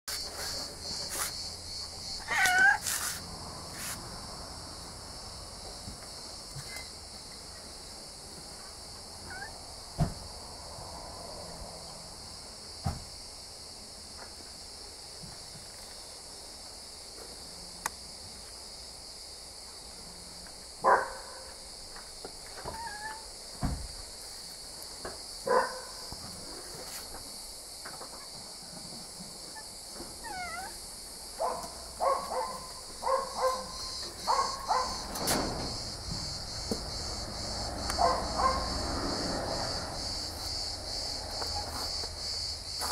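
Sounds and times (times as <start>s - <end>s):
cat meowing: 2.2s - 3.0s, 9.3s - 9.6s, 22.7s - 23.2s, 30.2s - 30.8s.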